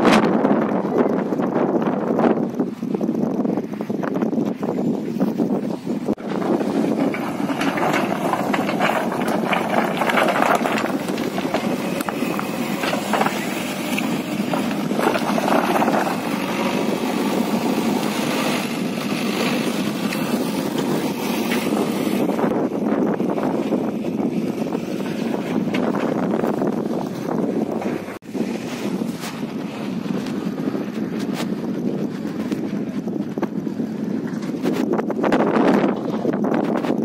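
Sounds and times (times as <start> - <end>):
diesel engine running: 0.0 - 37.0.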